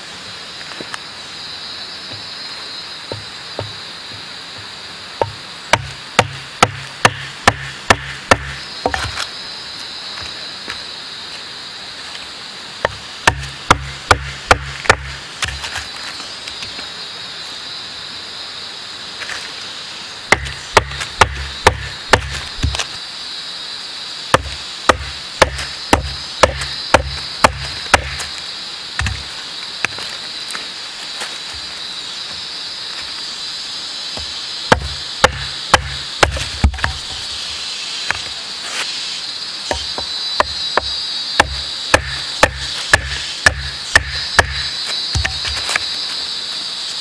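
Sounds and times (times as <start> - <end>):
knife chopping branch: 5.2 - 9.3, 12.8 - 15.9, 20.3 - 22.9, 24.3 - 28.4, 34.7 - 37.2, 39.7 - 45.9.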